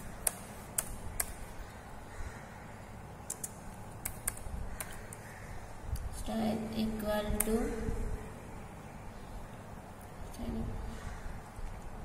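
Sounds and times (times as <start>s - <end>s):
keyboard typing clicks: 0.0s - 1.4s, 3.2s - 5.2s
faint low hum: 0.0s - 12.0s.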